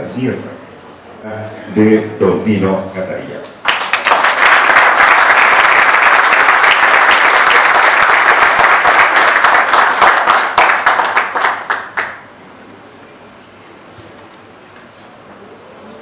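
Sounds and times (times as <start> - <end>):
audience applauding: 3.6 - 12.3.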